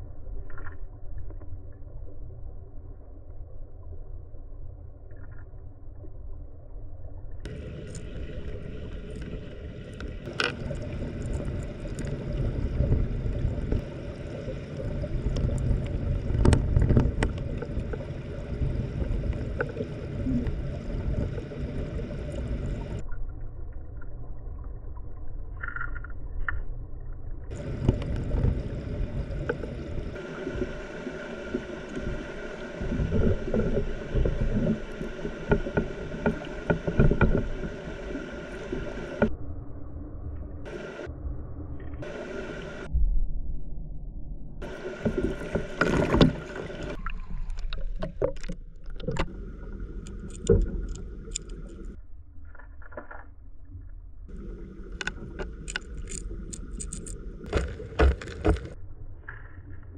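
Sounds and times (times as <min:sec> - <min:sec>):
underwater stream rumble: 0:00.0 - 0:59.9
underwater knocks and clicks: 0:07.5 - 0:13.9, 0:14.9 - 0:23.1, 0:27.5 - 0:30.2, 0:32.9 - 0:39.3, 0:44.6 - 0:53.3, 0:54.3 - 0:58.8.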